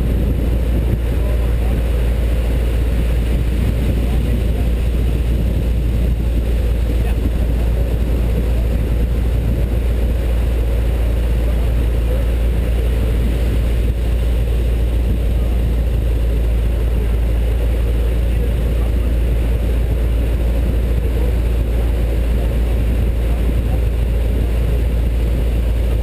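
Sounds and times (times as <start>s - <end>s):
truck engine idling: 0.0s - 26.0s.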